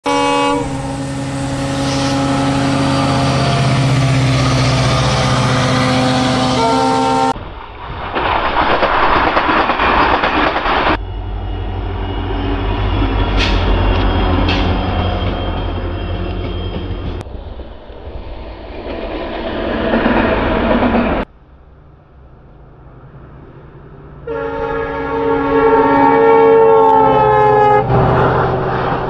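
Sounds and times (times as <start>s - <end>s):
locomotive horn: 0.0s - 7.4s, 24.2s - 29.0s
diesel locomotive rumbling past: 0.0s - 8.7s, 9.3s - 29.0s
electric train rushing past: 0.1s - 29.0s.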